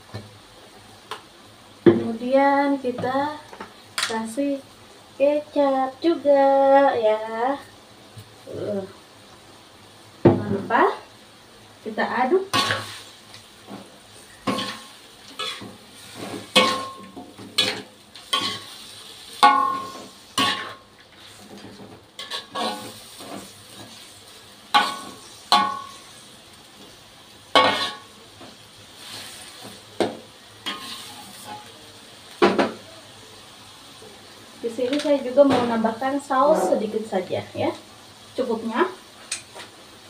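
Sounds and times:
food sizzling: 0.0s - 40.0s
metal spatula scraping a wok: 14.2s - 26.2s, 27.6s - 28.1s, 30.6s - 31.7s.

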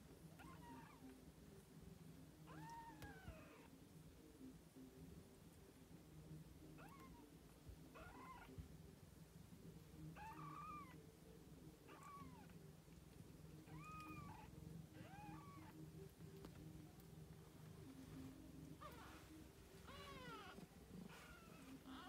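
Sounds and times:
kittens mewing: 10.2s - 11.0s, 11.9s - 12.6s, 13.6s - 15.8s, 19.8s - 22.0s.

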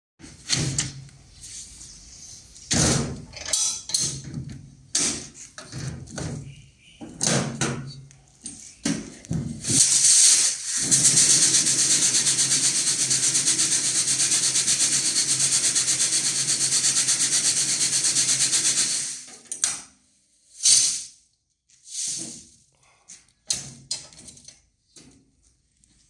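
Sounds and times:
machine rattling fast: 9.8s - 19.3s.

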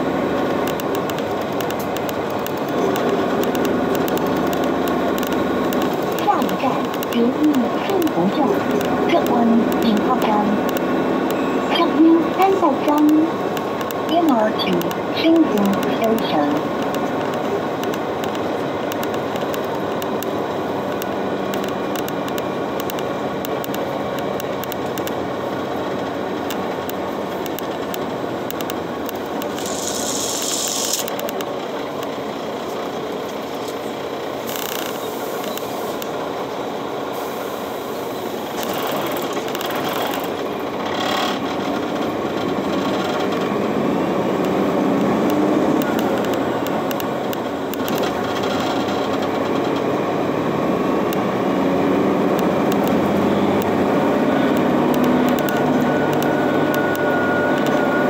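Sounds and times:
bus engine: 0.0s - 58.0s
air brake hiss: 35.0s - 36.0s, 37.1s - 38.3s.

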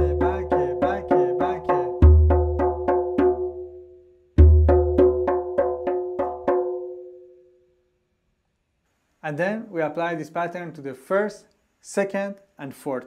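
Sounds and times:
goblet drum played with fingers: 0.0s - 7.3s.

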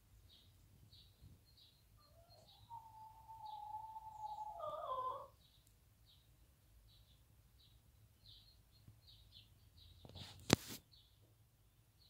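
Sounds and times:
hen calling: 2.0s - 5.4s.

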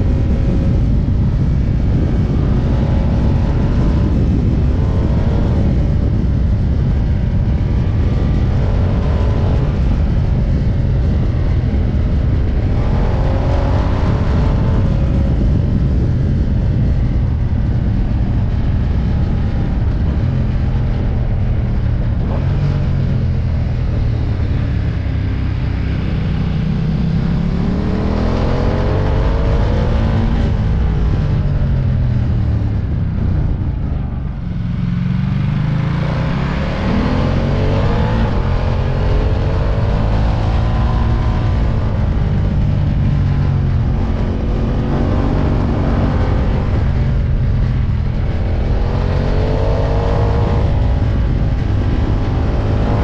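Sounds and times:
motorcycle engine revving: 0.0s - 53.0s
wind rumble on microphone: 0.0s - 53.0s.

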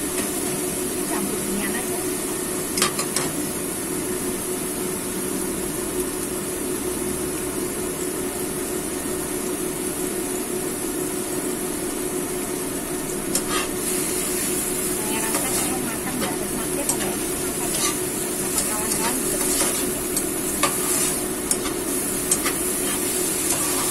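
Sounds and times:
chicken sizzling in oil: 0.0s - 23.9s
metal spatula clicking on pan: 21.5s - 22.6s.

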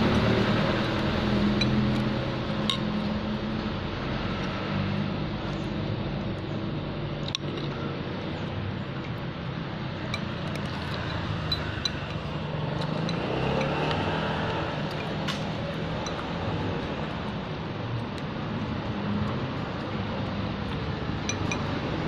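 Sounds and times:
cutlery clinking on ceramic bowl: 21.2s - 21.7s.

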